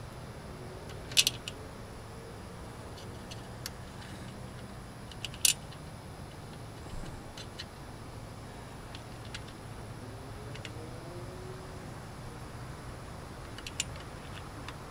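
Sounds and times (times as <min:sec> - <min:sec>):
wrench clinking on metal bolts: 0:01.1 - 0:01.5.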